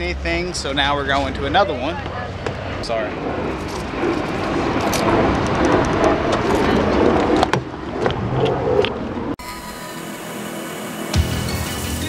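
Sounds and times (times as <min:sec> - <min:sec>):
wind and handling rumble: 0:00.0 - 0:09.4.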